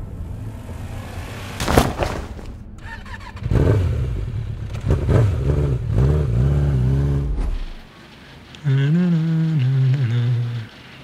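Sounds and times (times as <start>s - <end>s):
thud: 1.6s - 2.6s
motorcycle engine revving: 2.8s - 7.9s.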